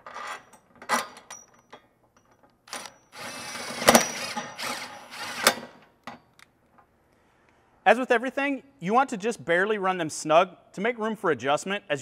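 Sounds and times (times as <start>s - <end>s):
impact driver running: 2.7s - 5.7s.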